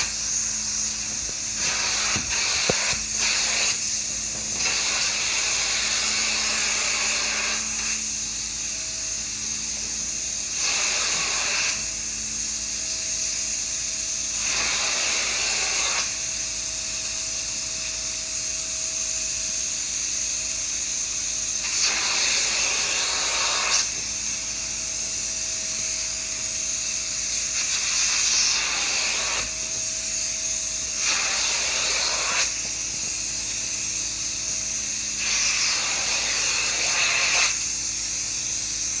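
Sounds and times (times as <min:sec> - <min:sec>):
upholstery tool hissing rush: 0:00.0 - 0:39.0.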